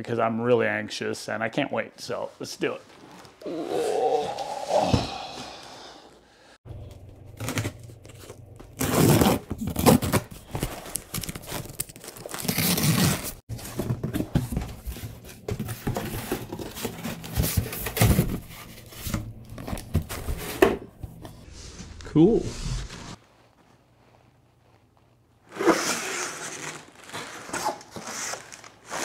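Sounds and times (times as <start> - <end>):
packing paper rustling: 6.8 - 20.6, 25.9 - 29.0
tape and cardboard tearing: 7.3 - 13.4, 25.5 - 29.0.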